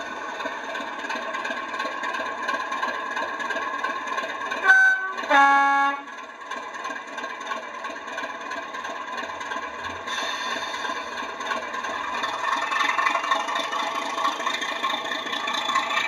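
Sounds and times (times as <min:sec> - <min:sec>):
diesel engine idling through speaker: 0:00.0 - 0:16.0
two-tone horn: 0:04.6 - 0:06.1.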